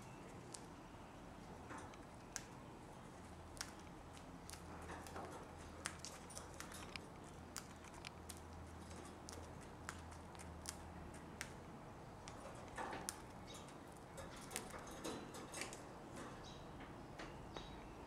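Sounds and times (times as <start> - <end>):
beaks cracking seeds: 1.9 - 14.7.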